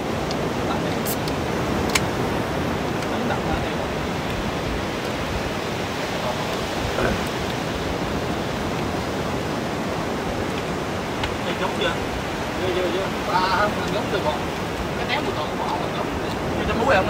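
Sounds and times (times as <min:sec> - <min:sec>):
sea surf rushing: 0:00.0 - 0:17.0
wind: 0:00.0 - 0:17.0
faint voices: 0:05.8 - 0:07.4.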